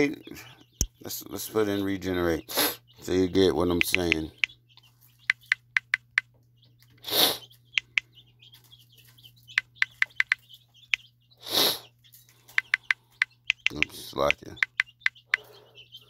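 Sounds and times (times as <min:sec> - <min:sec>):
short hissing noises: 0:07.0 - 0:07.4, 0:11.4 - 0:11.8
phone keyboard key clicks: 0:12.5 - 0:13.9.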